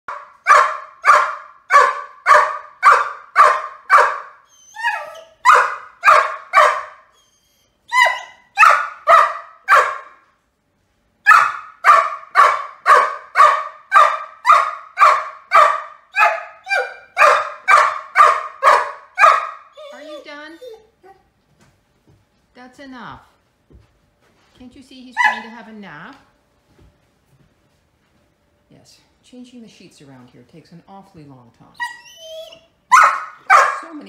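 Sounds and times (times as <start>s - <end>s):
puppy barking: 0.1s - 7.2s, 7.9s - 10.2s, 11.2s - 20.8s, 25.2s - 25.6s, 31.8s - 34.0s
puppy yelping: 0.1s - 10.2s, 11.3s - 21.2s, 25.2s - 25.6s, 31.8s - 33.9s.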